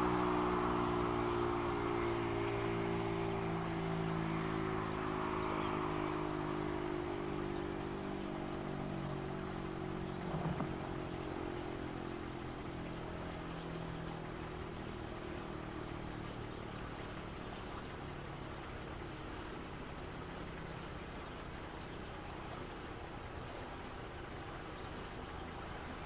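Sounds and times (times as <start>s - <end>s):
siren coasting down hum: 0.0s - 10.9s.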